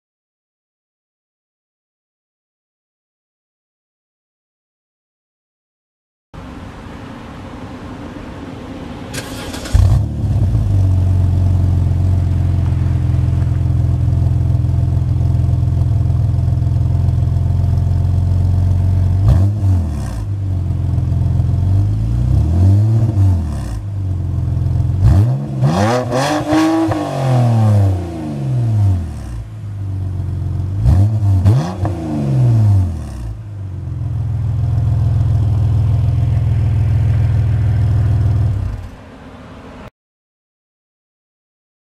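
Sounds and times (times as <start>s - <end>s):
car engine idling and revving: 6.4s - 39.9s.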